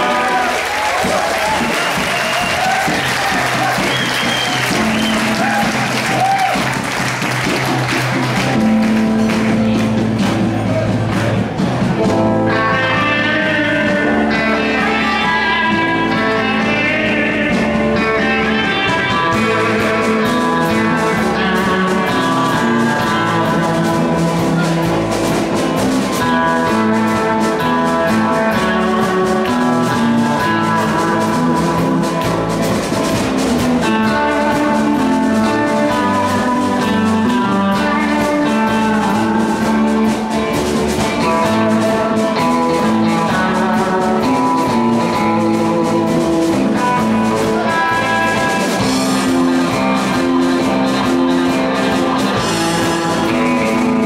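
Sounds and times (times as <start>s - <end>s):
audience applause: 0.0s - 11.8s
bass guitar: 0.0s - 54.0s
drums: 0.0s - 54.0s
electric lead guitar: 0.0s - 54.0s.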